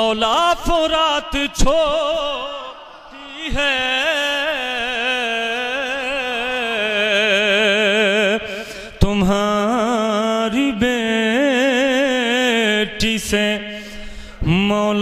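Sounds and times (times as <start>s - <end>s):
man singing into a microphone: 0.0s - 15.0s.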